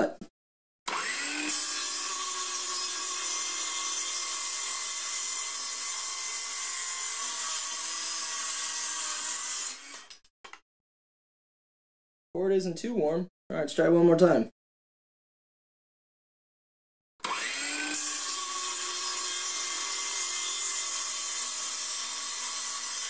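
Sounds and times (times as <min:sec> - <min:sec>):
saw motor whine: 0:00.9 - 0:07.1, 0:17.2 - 0:23.0
circular saw cutting wood: 0:00.9 - 0:10.3, 0:17.2 - 0:23.0.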